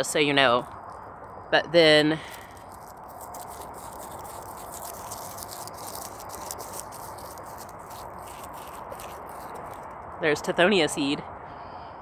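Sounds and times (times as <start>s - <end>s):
dry seed head crumbling: 2.2s - 10.0s.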